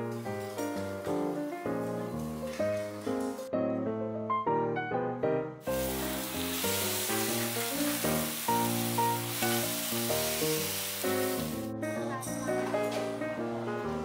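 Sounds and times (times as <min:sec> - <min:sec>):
piano music: 0:00.0 - 0:14.0
steak sizzling on a griddle: 0:00.2 - 0:03.2, 0:05.6 - 0:11.7.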